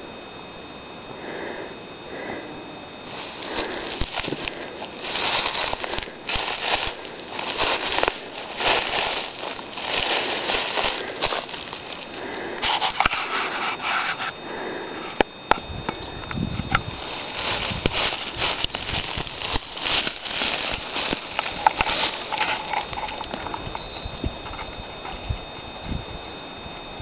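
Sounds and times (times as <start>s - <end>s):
footsteps crunching on dry leaves: 3.0s - 14.4s, 16.3s - 26.1s
twigs snapping: 3.2s - 13.2s, 16.3s - 24.7s.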